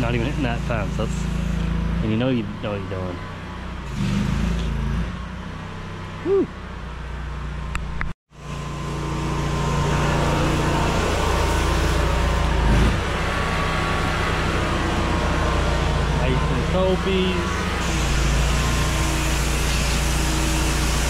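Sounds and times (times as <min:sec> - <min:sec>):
pressure washer engine running: 0:00.0 - 0:04.7, 0:08.3 - 0:21.0.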